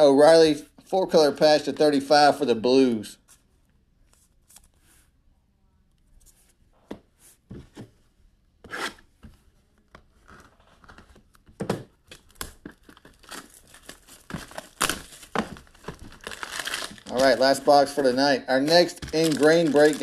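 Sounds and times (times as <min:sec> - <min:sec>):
wrapping torn and crinkled: 0:12.1 - 0:20.0.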